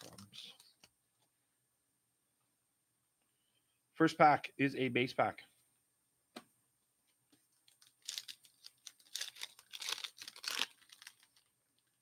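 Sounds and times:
foil wrapper tearing and crinkling: 0:07.7 - 0:11.5.

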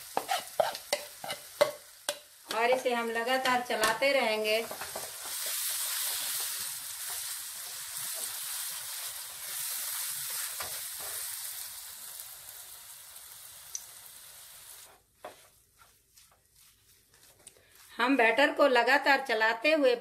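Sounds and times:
batter sizzling in hot oil: 0:00.0 - 0:15.4.

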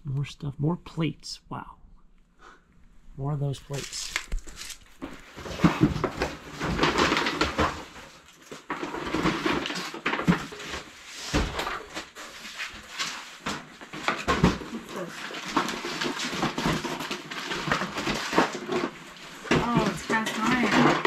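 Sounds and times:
cardboard boxes rustling and scraping: 0:03.7 - 0:21.0.

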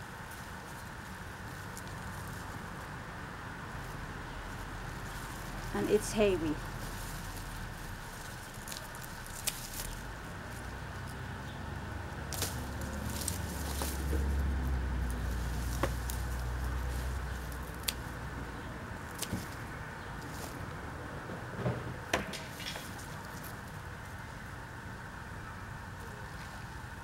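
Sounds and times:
stalks being handled: 0:00.2 - 0:03.0, 0:03.7 - 0:24.2
vehicle passing by: 0:01.9 - 0:22.1.

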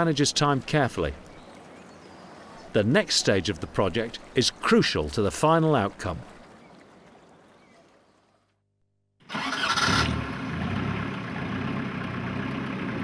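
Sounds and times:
motorboat engine droning: 0:09.3 - 0:13.0.

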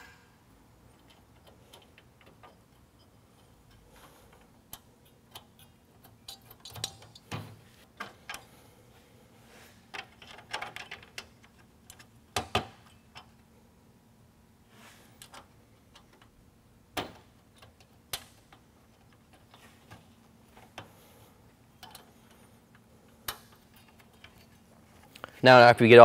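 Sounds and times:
metal brackets clicking: 0:01.0 - 0:07.4.

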